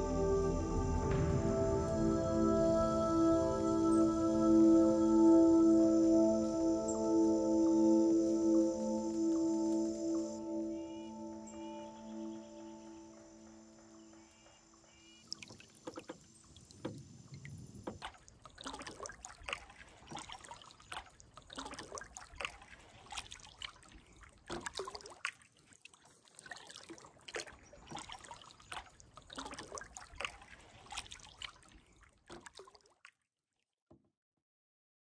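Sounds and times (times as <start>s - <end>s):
water dripping off paddle: 8.0s - 33.2s
paddle splashing in water: 13.7s - 33.2s.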